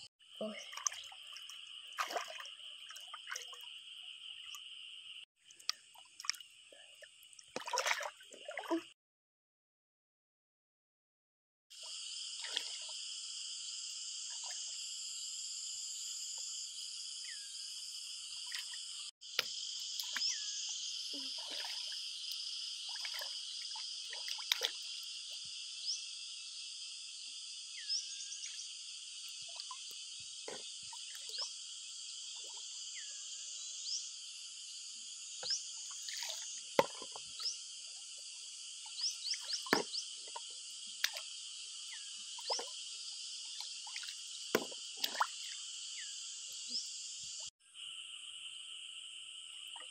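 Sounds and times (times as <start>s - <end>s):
frogs and insects calling: 0.0s - 9.0s, 11.8s - 49.9s
pond water sloshing and plopping: 0.4s - 4.8s, 5.4s - 9.0s, 11.8s - 13.0s, 18.4s - 20.4s, 21.2s - 25.4s, 29.3s - 31.5s, 35.4s - 41.4s, 42.3s - 45.7s.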